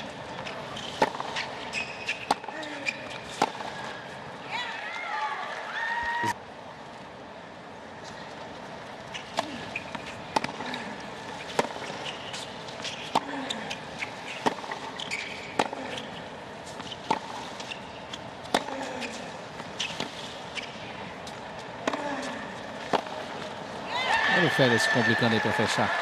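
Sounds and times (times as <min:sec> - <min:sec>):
stadium background hum: 0:00.0 - 0:26.0
tennis ball struck with racket: 0:10.3 - 0:10.6.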